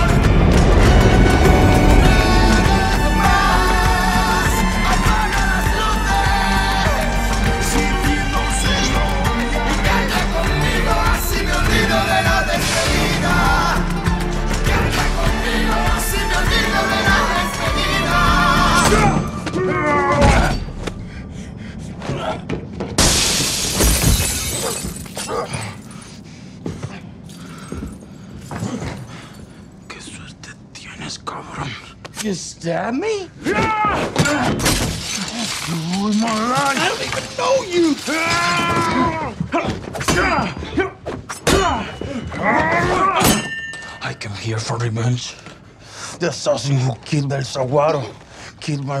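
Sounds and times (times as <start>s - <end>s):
men shouting and straining: 16.8s - 20.8s, 33.3s - 43.6s
glass shattering: 23.0s - 26.0s, 34.2s - 38.9s, 43.2s - 44.1s.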